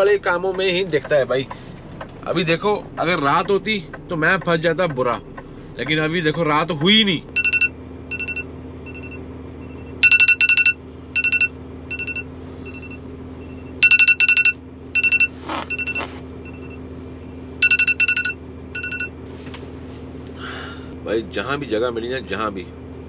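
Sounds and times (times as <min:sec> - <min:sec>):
steady low hum: 0:00.0 - 0:23.0
phone alert rapid beeps: 0:07.4 - 0:09.2, 0:10.0 - 0:13.0, 0:13.6 - 0:16.8, 0:17.6 - 0:19.1.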